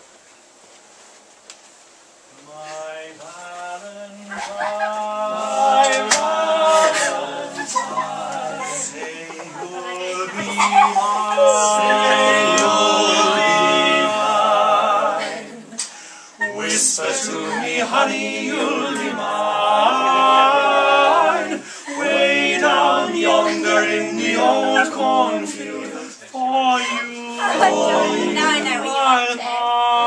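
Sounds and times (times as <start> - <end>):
men singing in harmony: 2.5 - 15.8, 16.4 - 26.2, 26.8 - 30.0.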